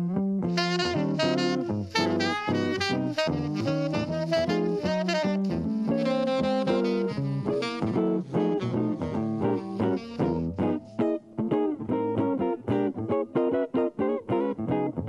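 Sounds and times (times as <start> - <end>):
electric guitar accompaniment: 0.0 - 15.0
saxophone playing quick notes: 0.5 - 11.0.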